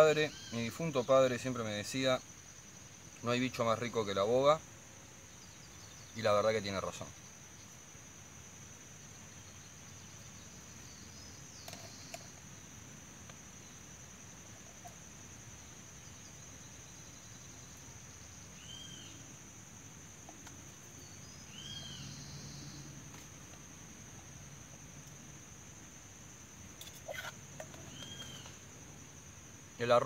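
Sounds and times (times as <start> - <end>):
high-pitched insect drone: 26.0 - 30.0
short bird chirps: 26.8 - 28.6.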